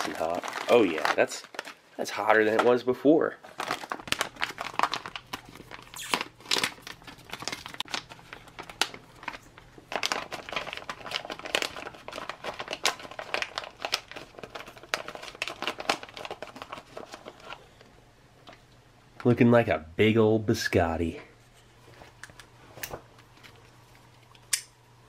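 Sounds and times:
foil pouch tearing: 0.0 - 1.8, 3.5 - 17.6
foil wrapper crinkling: 0.0 - 2.8, 3.4 - 17.9.

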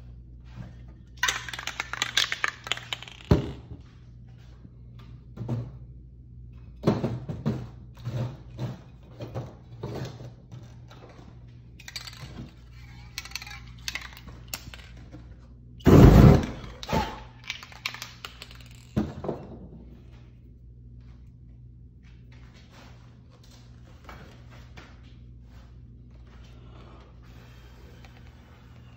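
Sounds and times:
steady low hum: 0.0 - 28.9
spray cans knocking and clattering: 1.2 - 3.7.

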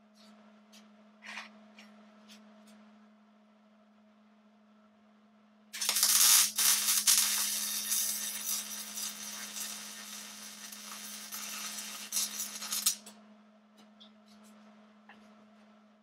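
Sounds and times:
steady low hum: 0.0 - 16.0
welding arc crackling: 5.8 - 13.1.

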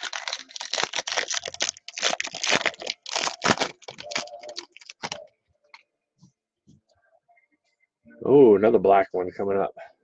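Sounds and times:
foil wrapper tearing and crinkling: 0.0 - 5.2.

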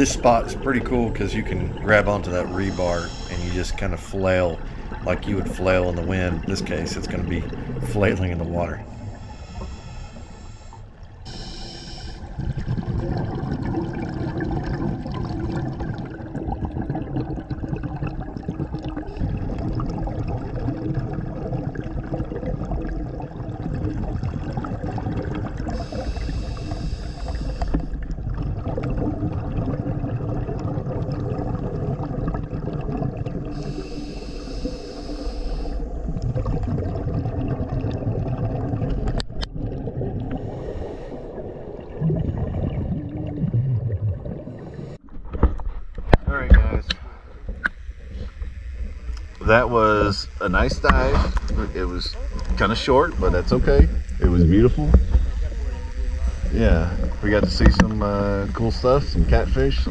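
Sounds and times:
regulator bubbles hissing: 0.0 - 45.1, 46.7 - 59.9
muffled underwater rush: 0.0 - 59.9.

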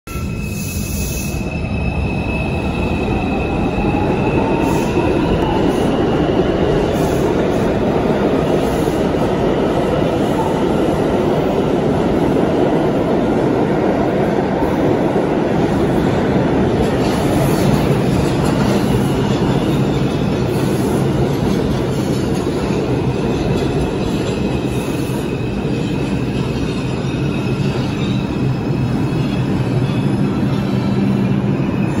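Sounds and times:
train wheels rumbling on rail: 0.1 - 32.0
high wheel squeal: 24.0 - 32.0.

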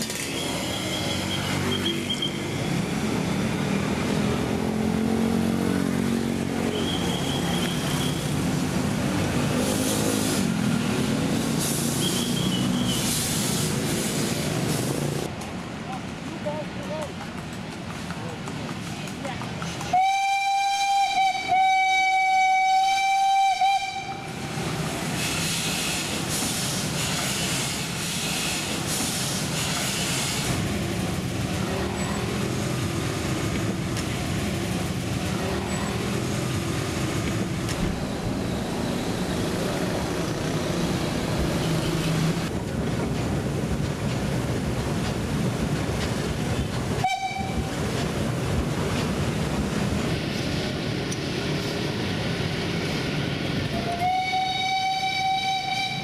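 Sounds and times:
train rolling rumble: 0.0 - 56.0
train whistle blast: 19.9 - 24.3, 47.0 - 47.6, 53.8 - 56.0.

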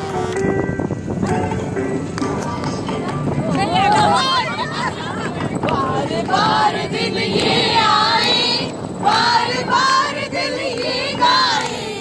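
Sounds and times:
women and children singing: 5.7 - 12.0
people clapping: 10.6 - 12.0.

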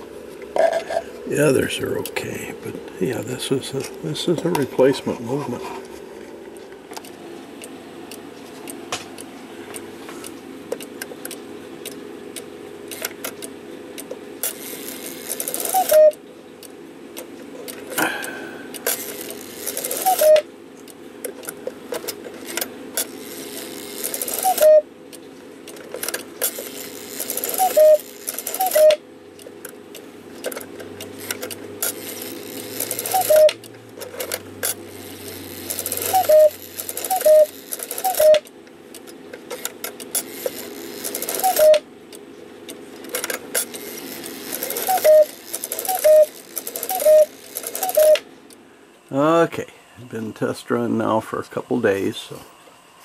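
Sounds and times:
steady hum: 0.0 - 53.0
clock mechanism whirring and clicking: 6.3 - 48.6.

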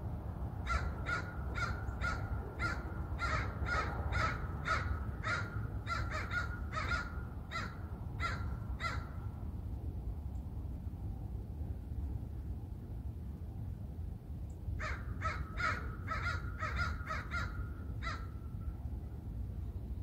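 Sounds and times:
crow cawing: 0.6 - 9.2, 14.8 - 18.4.

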